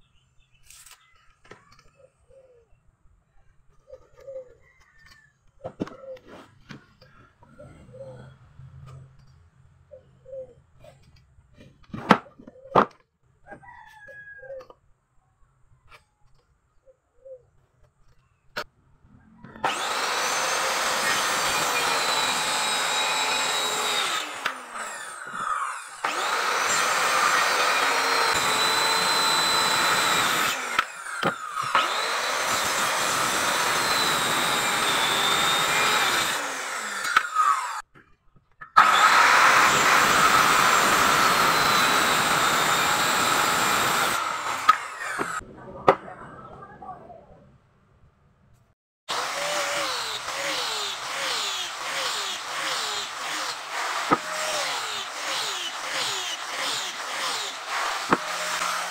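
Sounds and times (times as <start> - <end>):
circular saw cutting wood: 19.4 - 37.9, 38.8 - 45.4, 49.1 - 58.9.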